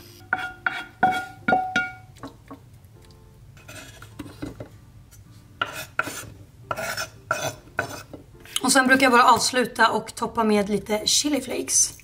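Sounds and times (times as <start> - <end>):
knife scraping cutting board: 0.3 - 1.4, 3.6 - 4.6, 5.6 - 8.7.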